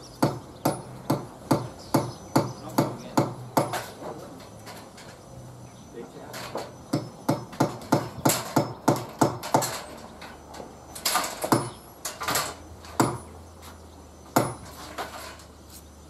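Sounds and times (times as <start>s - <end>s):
hammer striking timber: 0.2s - 4.0s, 6.6s - 9.9s, 11.1s - 12.4s, 13.0s - 13.3s, 14.3s - 14.7s.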